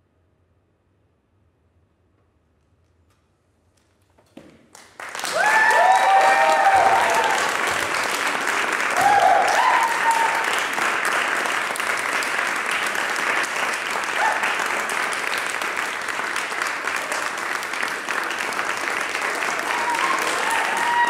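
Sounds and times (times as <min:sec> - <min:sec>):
audience applauding: 0:04.7 - 0:21.0
audience cheer: 0:05.1 - 0:15.9, 0:16.6 - 0:21.0.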